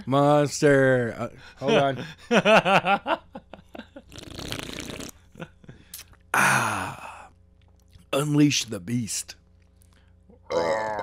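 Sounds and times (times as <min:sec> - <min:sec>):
small mouth clicks: 0:05.9 - 0:06.3
man's breathy groan: 0:06.4 - 0:07.3.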